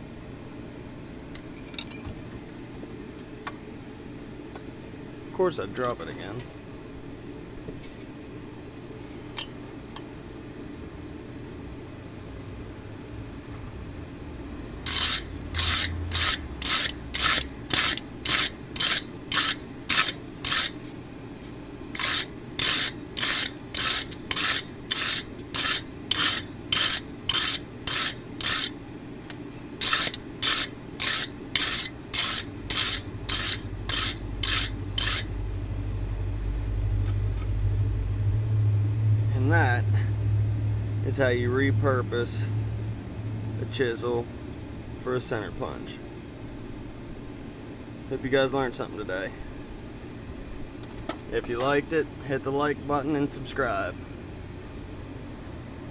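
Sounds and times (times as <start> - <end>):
hand file rasping on steel: 14.9 - 20.8, 22.0 - 28.7, 29.8 - 35.3
low rumble: 35.3 - 43.7.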